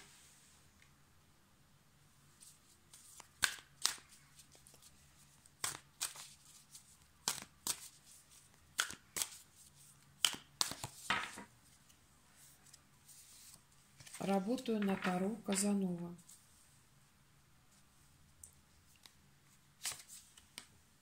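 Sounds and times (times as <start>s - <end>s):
cards rustling: 2.4s - 11.9s, 19.8s - 20.7s
cards slapping while shuffled: 2.9s - 11.5s, 19.8s - 20.7s.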